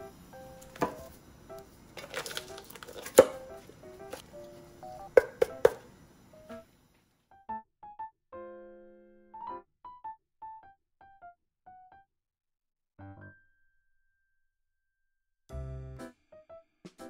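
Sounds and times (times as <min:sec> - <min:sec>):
light background music: 0:00.0 - 0:06.7
knocks on cutting board: 0:00.8 - 0:01.1, 0:05.1 - 0:05.8
plastic bag crinkling: 0:01.9 - 0:04.2.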